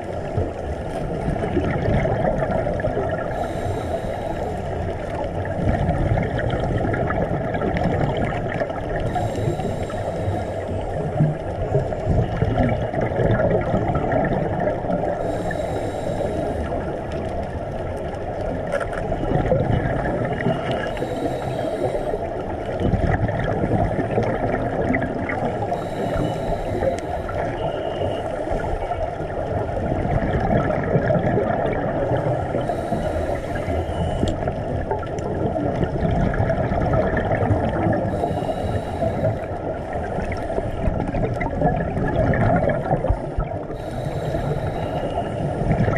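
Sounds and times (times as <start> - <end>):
underwater bubbling: 0.0 - 45.9
diver breathing through regulator: 2.8 - 5.1, 9.0 - 12.4, 15.0 - 17.0, 20.3 - 22.5, 23.5 - 28.7, 31.6 - 34.6, 37.6 - 41.0, 42.4 - 45.9.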